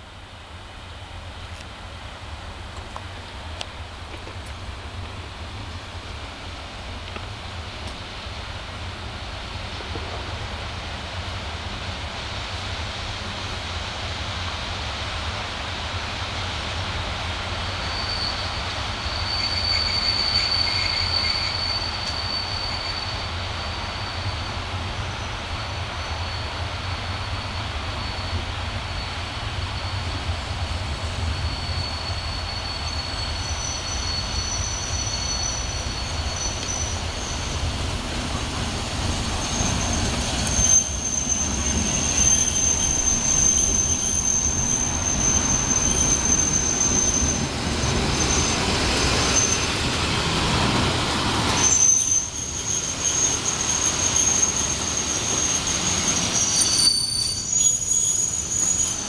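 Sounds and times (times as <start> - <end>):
train rumble: 0.0 - 59.0
train wheels squealing: 16.2 - 59.0.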